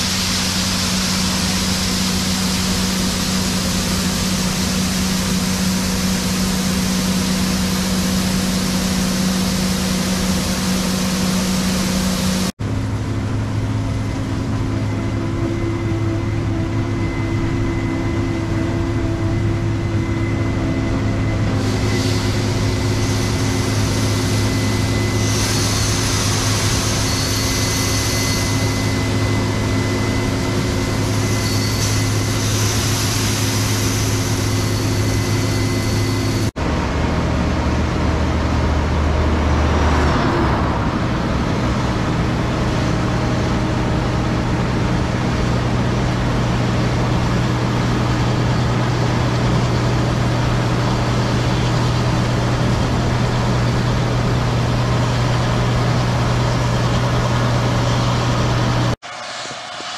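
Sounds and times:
high hiss: 0:00.0 - 0:12.5, 0:21.6 - 0:36.5
combine harvesters running: 0:00.0 - 0:59.9.

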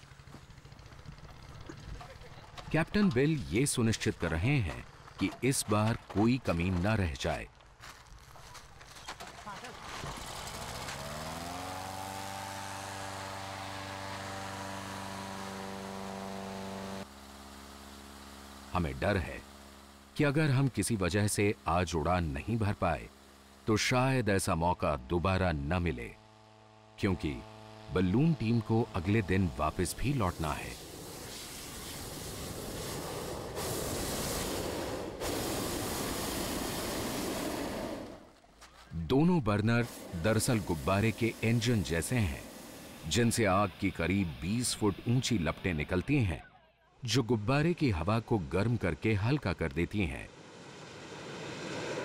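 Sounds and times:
propane burner roaring: 0:00.0 - 0:05.6, 0:09.9 - 0:23.9, 0:26.2 - 0:38.4, 0:39.5 - 0:46.0, 0:47.8 - 0:52.0
inflator fan engine running: 0:00.0 - 0:07.2, 0:10.2 - 0:24.5, 0:25.8 - 0:38.4, 0:39.5 - 0:46.1.

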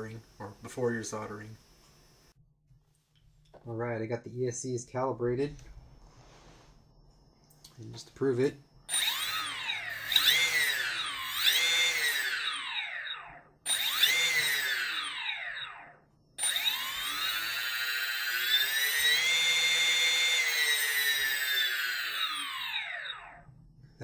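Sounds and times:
drone motors whining: 0:08.9 - 0:23.6.

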